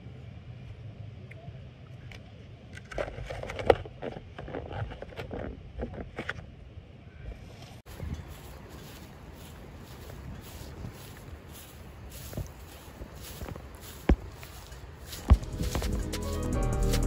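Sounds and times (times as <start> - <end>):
wind rumble on microphone: 7.9 - 16.1.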